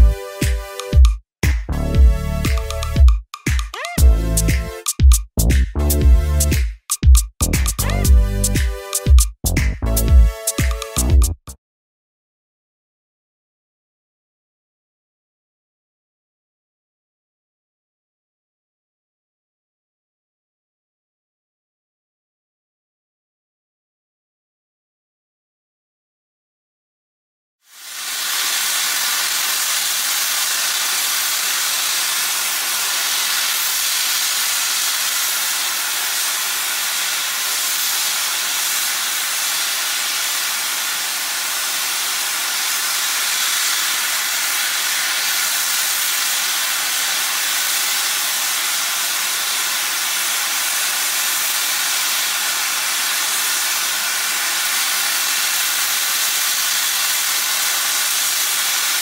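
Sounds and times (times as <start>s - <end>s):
steam locomotive venting steam: 27.7s - 59.0s.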